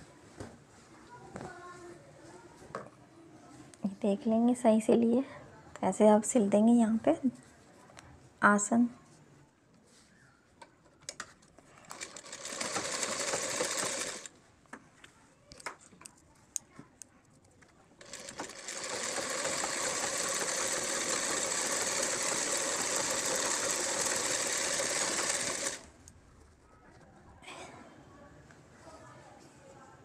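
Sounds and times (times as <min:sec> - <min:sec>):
sewing machine stitching: 0:11.9 - 0:14.3, 0:18.0 - 0:25.9.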